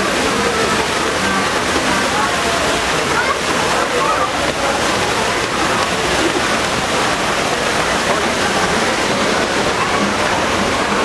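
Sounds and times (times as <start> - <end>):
fountain water splashing into basin: 0.0 - 11.0.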